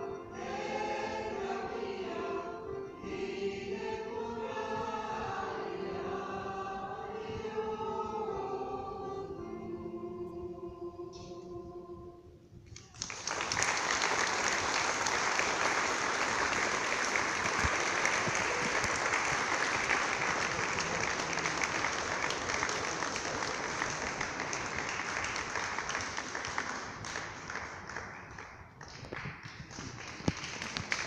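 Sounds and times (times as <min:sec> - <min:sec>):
choir final chord: 0:00.0 - 0:12.4
audience applauding: 0:12.8 - 0:31.0.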